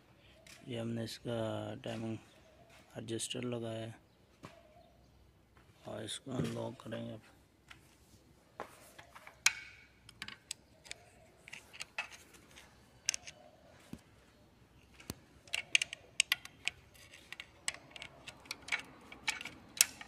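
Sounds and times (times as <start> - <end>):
hand tools clicking on metal: 15.0 - 20.0.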